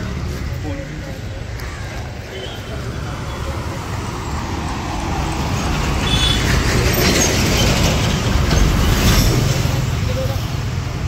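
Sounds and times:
road traffic: 0:00.0 - 0:11.0
truck engine: 0:02.9 - 0:11.0.

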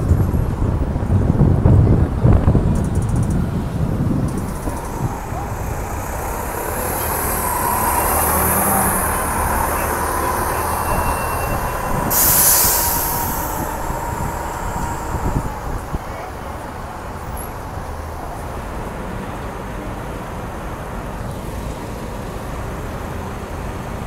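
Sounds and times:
diesel buses passing: 0:00.0 - 0:24.0
engine whine: 0:00.0 - 0:24.0
air hiss: 0:11.9 - 0:16.0.

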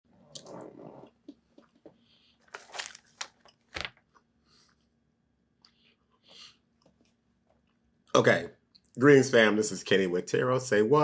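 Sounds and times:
candy crinkling and crunching: 0:02.5 - 0:03.9.

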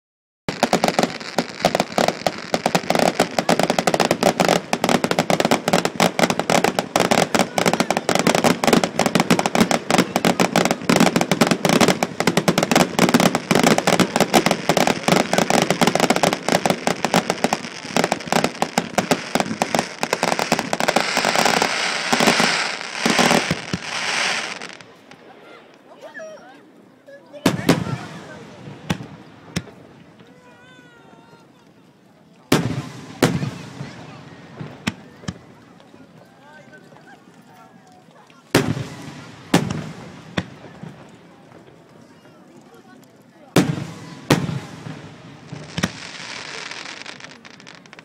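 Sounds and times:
fireworks crackling: 0:00.5 - 0:48.0.

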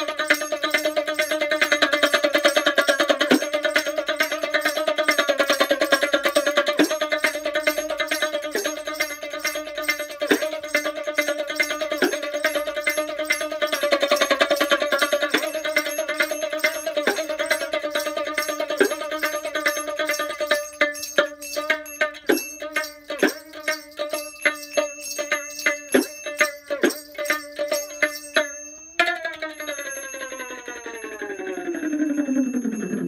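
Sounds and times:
plucked string instrument: 0:00.0 - 0:33.0
small bells or rattle: 0:00.0 - 0:33.0
held drone: 0:29.6 - 0:33.0.

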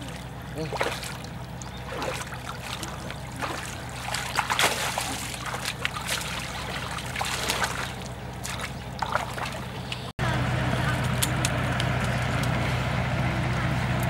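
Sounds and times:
legs wading in shallow water: 0:00.0 - 0:10.1
water splashing and trickling: 0:00.0 - 0:10.1
steady low hum: 0:00.0 - 0:14.0.

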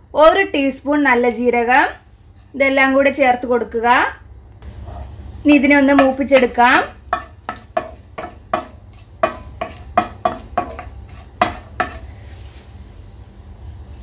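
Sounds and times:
spices sizzling in oil: 0:04.6 - 0:14.0.

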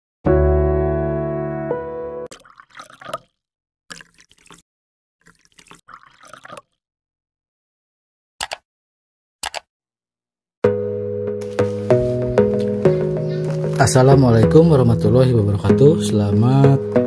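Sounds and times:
water drips and splashes: 0:02.3 - 0:04.6, 0:05.2 - 0:06.8
short clicks: 0:09.4 - 0:09.7.

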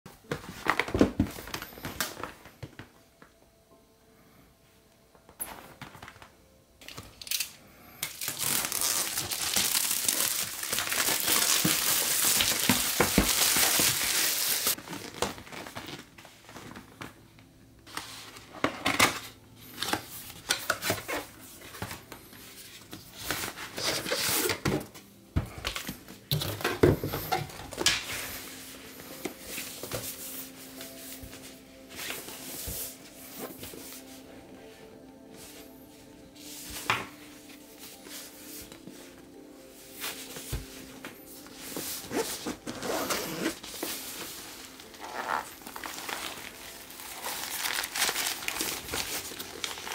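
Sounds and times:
plastic wrap crinkling and tearing: 0:07.2 - 0:17.0, 0:42.0 - 0:49.9.

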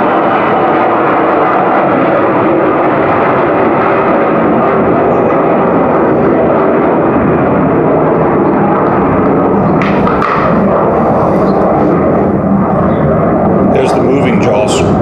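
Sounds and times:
fighter jet flyby: 0:00.0 - 0:15.0.

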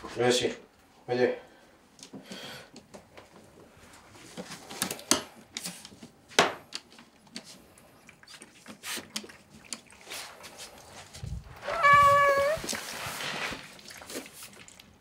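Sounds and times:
cats chewing and smacking: 0:04.2 - 0:11.2.

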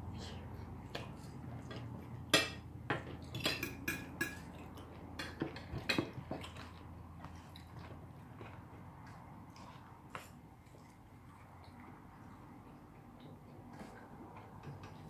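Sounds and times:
cutlery clinking on plates: 0:02.4 - 0:04.5.

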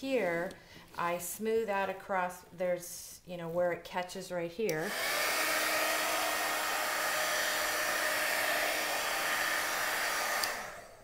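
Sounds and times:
heat gun blowing: 0:04.8 - 0:11.0.

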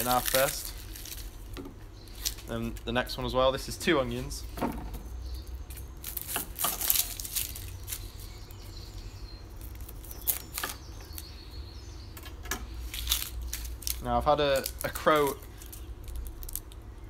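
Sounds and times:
onion skin being peeled: 0:00.0 - 0:02.9, 0:05.4 - 0:11.4, 0:12.7 - 0:17.0.

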